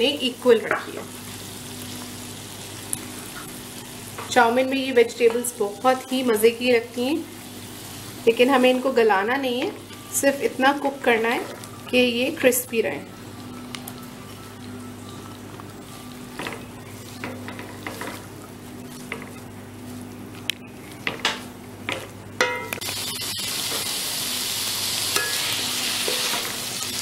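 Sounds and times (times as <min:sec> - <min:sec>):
loud steady sizzle: 0:00.0 - 0:27.0
spatula scraping and knocking a wok: 0:16.4 - 0:18.2, 0:25.1 - 0:26.6.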